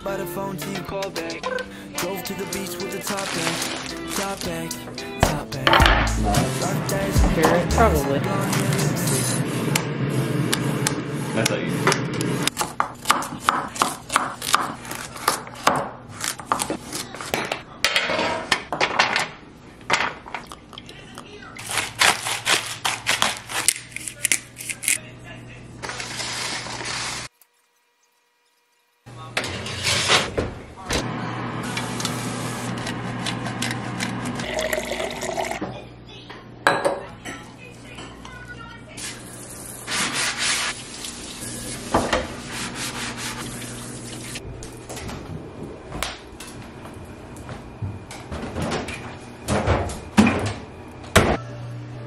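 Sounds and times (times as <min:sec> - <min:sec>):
knife chopping on wooden board: 0:12.5 - 0:15.9
knife scraping board: 0:29.5 - 0:30.3
water pouring into a glass: 0:34.4 - 0:35.6.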